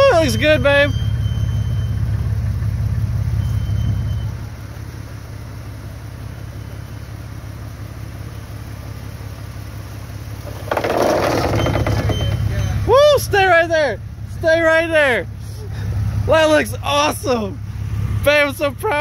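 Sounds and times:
car engine low rumble: 0:00.0 - 0:19.0.

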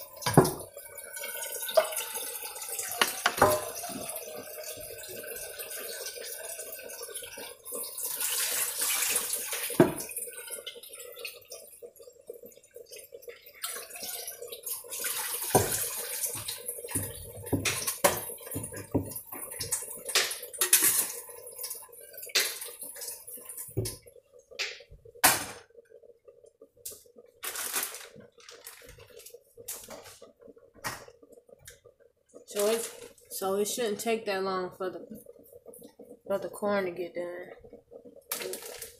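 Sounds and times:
tap water running: 0:00.0 - 0:38.9
cookware clattering against sink: 0:03.0 - 0:03.9.

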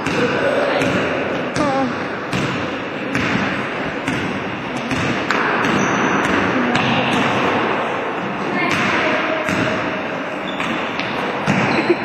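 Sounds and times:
basketball bouncing on wooden floor: 0:00.0 - 0:07.4.

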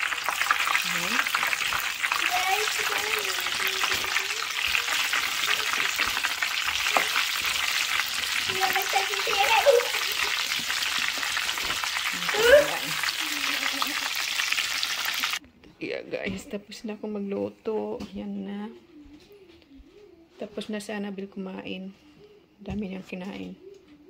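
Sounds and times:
chicken deep-frying in hot oil: 0:00.0 - 0:15.4.

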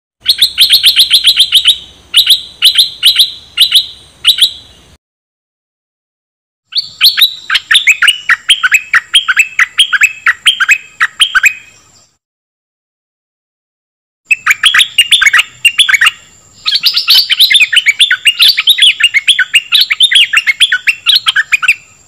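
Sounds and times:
bird chirping: 0:00.2 - 0:05.0, 0:06.7 - 0:12.2, 0:14.3 - 0:22.0.

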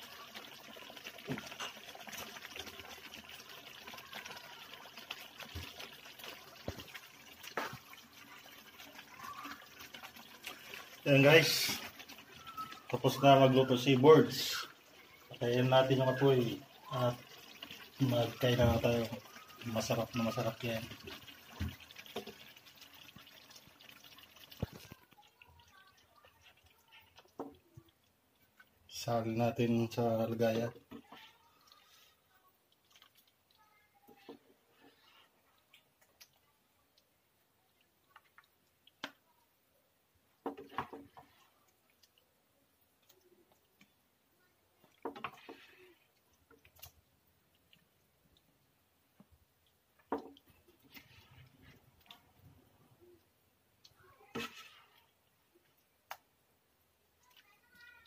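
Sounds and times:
sauce bubbling and popping: 0:00.0 - 0:33.6, 0:34.2 - 0:57.8
spoon scraping a pan: 0:54.3 - 0:55.2.

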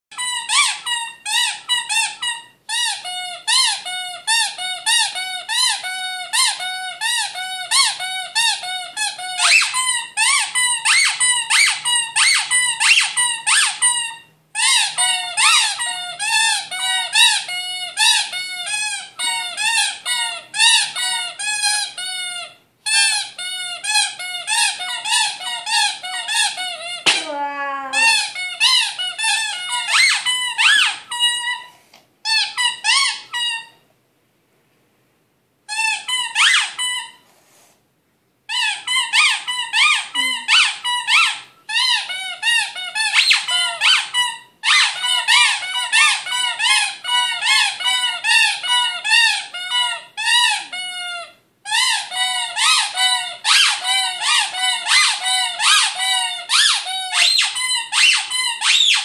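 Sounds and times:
squeaky toys squeaking: 0:00.1 - 0:33.8, 0:35.7 - 0:37.2, 0:38.5 - 0:59.0.

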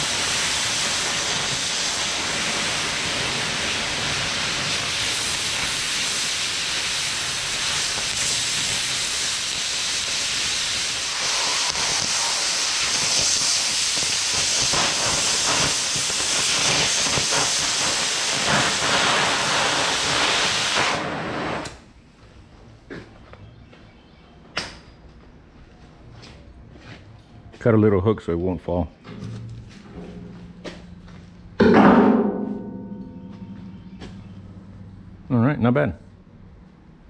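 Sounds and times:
cutting torch hissing jet: 0:00.0 - 0:21.8.

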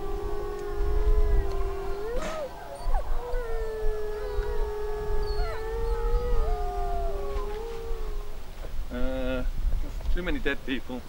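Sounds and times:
people howling like wolves: 0:00.0 - 0:08.5.

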